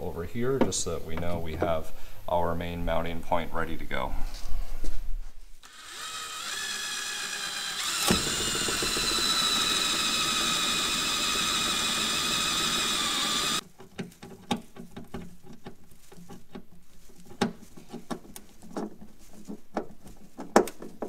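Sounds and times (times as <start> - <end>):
cordless drill motor whining: 5.6 - 13.6.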